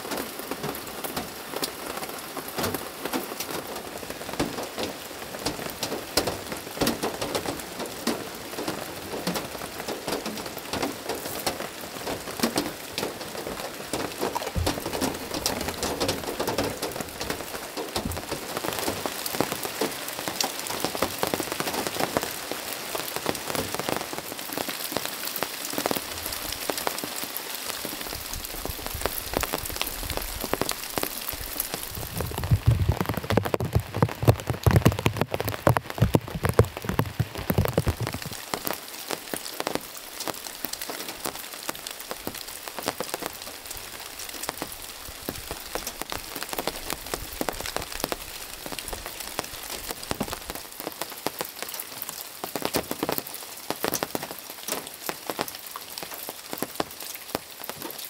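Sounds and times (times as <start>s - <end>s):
heavy rain on tarp and leaves: 0.0s - 58.0s
low thuds: 14.5s - 18.4s, 31.8s - 38.4s.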